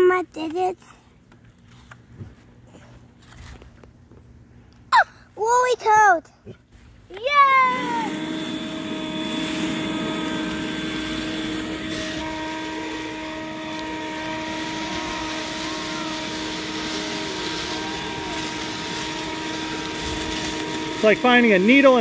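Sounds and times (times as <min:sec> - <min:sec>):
leaf blower whine and rushing air: 0:06.8 - 0:22.0.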